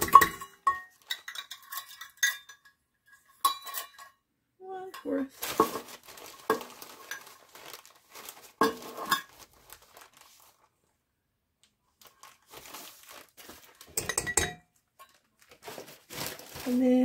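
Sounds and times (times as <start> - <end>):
packaging crinkling: 5.4 - 10.8, 11.9 - 14.0, 15.1 - 17.0.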